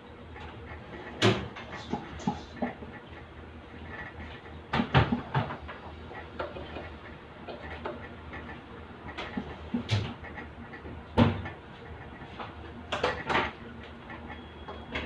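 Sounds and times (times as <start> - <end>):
steady low hum: 0.0 - 15.0
tray and kitchen items clattering: 12.4 - 13.6.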